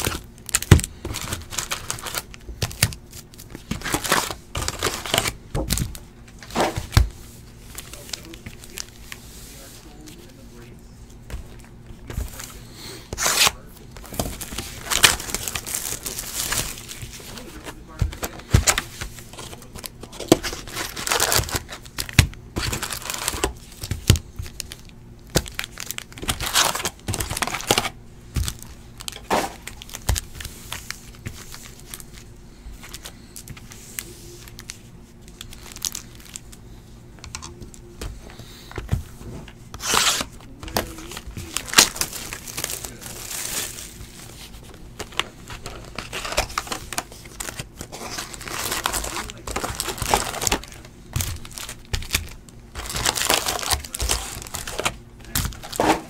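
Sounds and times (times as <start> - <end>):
foil card packs crinkling: 0.0 - 56.0
cardboard boxes tearing open: 13.2 - 18.8, 39.7 - 43.8, 45.6 - 52.2, 52.8 - 56.0.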